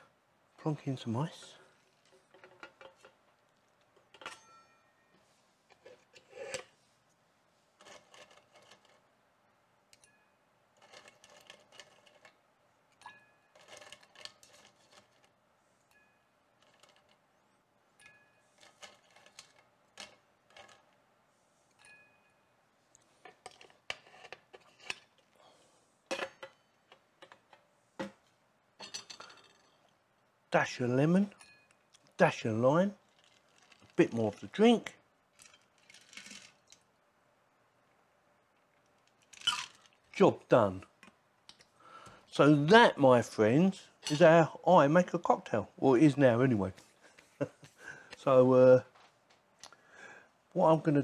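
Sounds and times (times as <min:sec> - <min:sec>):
ice cubes clinking in glass: 0:39.3 - 0:39.9.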